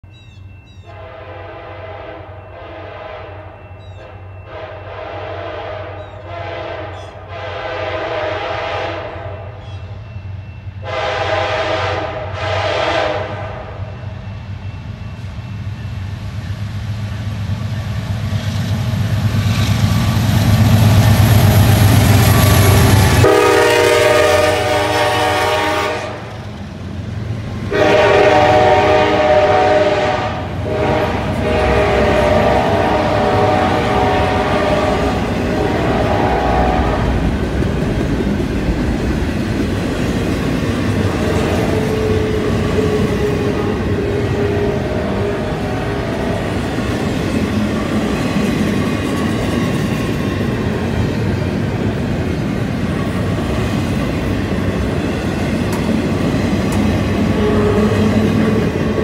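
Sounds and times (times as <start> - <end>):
train horn blasts: 0.8 - 9.6, 10.8 - 14.1, 22.2 - 26.4, 27.6 - 37.4, 41.0 - 47.4, 57.2 - 59.0
locomotive engine rumble: 6.0 - 59.0
freight cars rolling by: 30.4 - 59.0.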